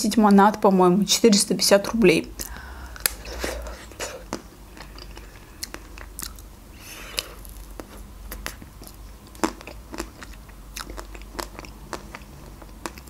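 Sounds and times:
chewing mouth sounds: 0:02.4 - 0:13.0
chocolate shell crackling: 0:07.2 - 0:10.3.

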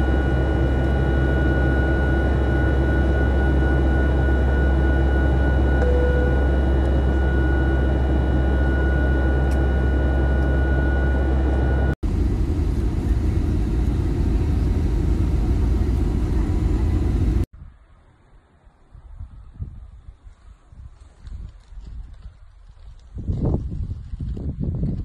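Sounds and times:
airliner engine rumble: 0:00.0 - 0:17.5
thin steady whine: 0:00.0 - 0:17.5
outdoor ambience: 0:00.0 - 0:25.0.

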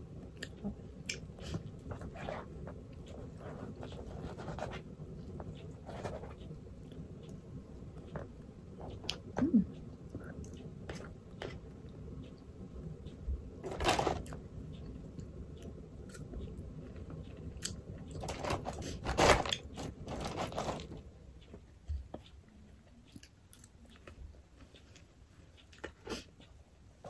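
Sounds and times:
person chewing: 0:22.2 - 0:25.0.

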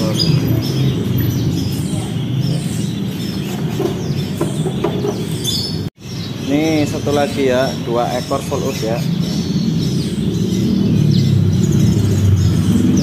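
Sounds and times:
songbirds chirping: 0:00.0 - 0:13.0.

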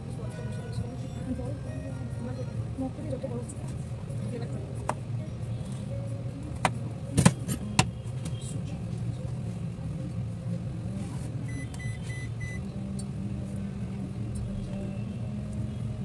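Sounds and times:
appliance short beeps: 0:11.5 - 0:12.6.

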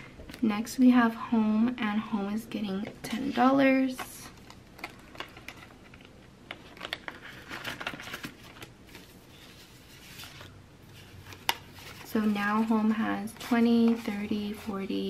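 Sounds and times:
banknotes and plastic pouches rustling: 0:03.1 - 0:15.0.

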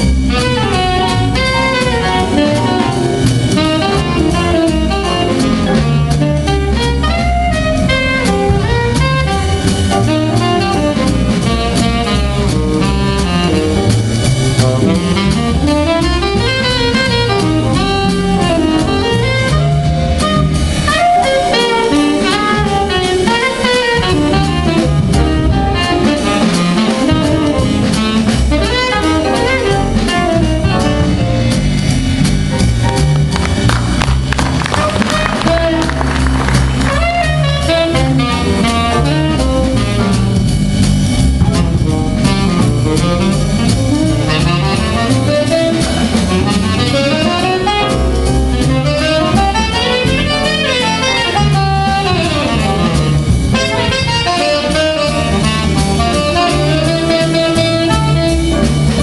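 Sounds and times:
alto saxophone solo: 0:00.0 - 0:59.0
jazz big band swinging: 0:00.0 - 0:59.0.

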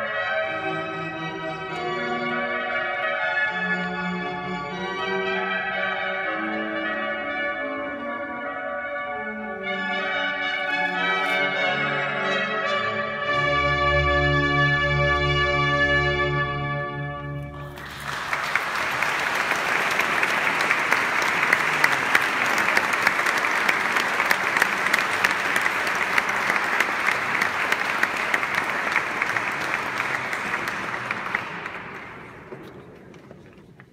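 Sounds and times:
audience applause: 0:17.6 - 0:33.9.

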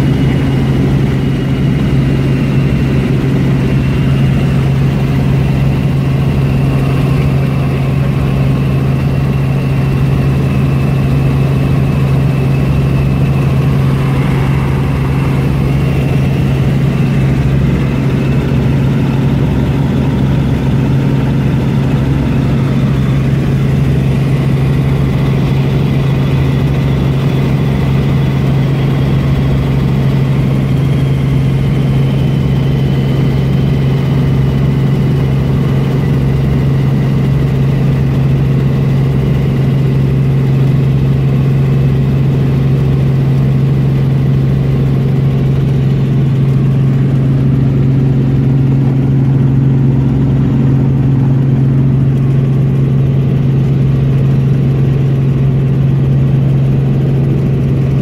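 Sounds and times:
faint high whine: 0:00.0 - 0:28.3
helicopter rotor and engine drone: 0:00.0 - 0:58.0.

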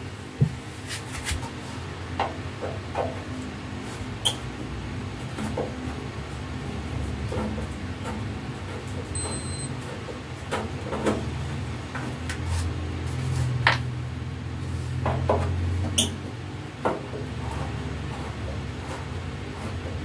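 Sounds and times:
steady low hum: 0:06.0 - 0:09.8.

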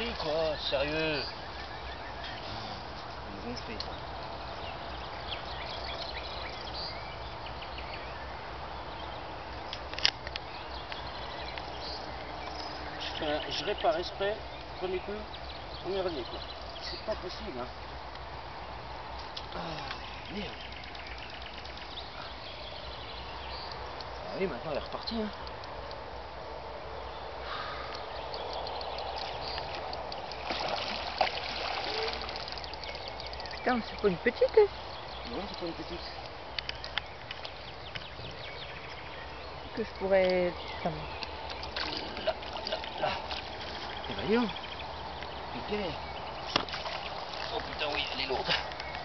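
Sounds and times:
small birds chirping: 0:00.0 - 0:49.0
fish splashing at surface: 0:29.0 - 0:33.6
sharp clicks: 0:32.5 - 0:34.6.

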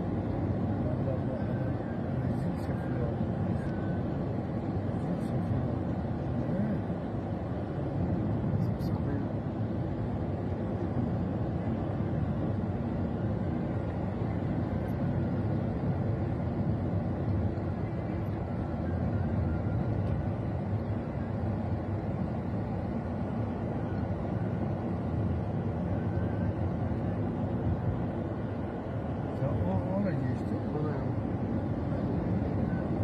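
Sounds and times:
car engine rumble from inside: 0:00.0 - 0:33.0.

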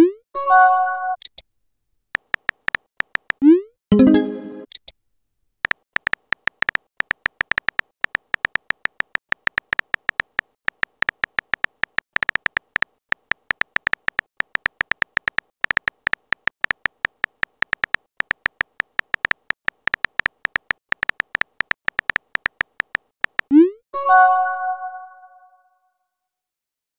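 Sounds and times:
keyboard typing taps: 0:02.2 - 0:03.6, 0:05.6 - 0:23.6
message pop-up tone: 0:03.4 - 0:04.7, 0:23.5 - 0:25.6.

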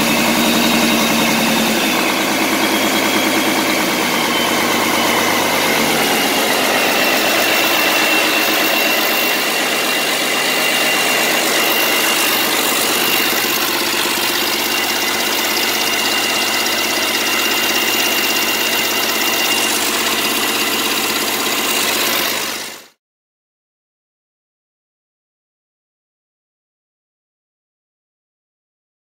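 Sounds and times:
high-pitched whine: 0:00.0 - 0:22.9
diesel engine clatter: 0:00.0 - 0:23.0.

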